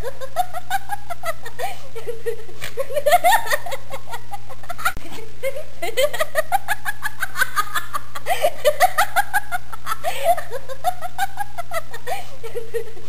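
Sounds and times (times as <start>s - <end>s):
person laughing: 0.0s - 13.0s.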